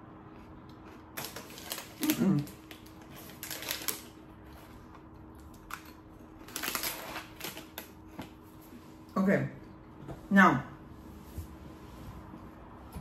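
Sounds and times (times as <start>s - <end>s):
plastic bag crinkling: 1.2s - 4.8s, 5.5s - 8.0s.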